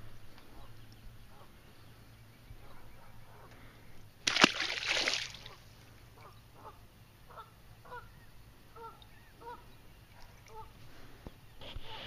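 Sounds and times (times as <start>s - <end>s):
water splash: 4.2s - 5.6s.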